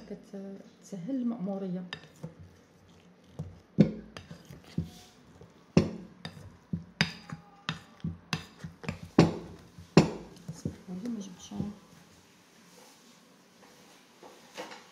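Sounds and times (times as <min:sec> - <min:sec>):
metal masher knocking glass bowl: 0:05.8 - 0:10.8.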